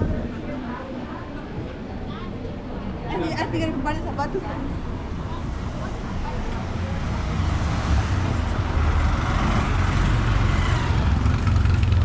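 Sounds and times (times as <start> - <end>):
vehicle engine rumbling: 4.3 - 12.0.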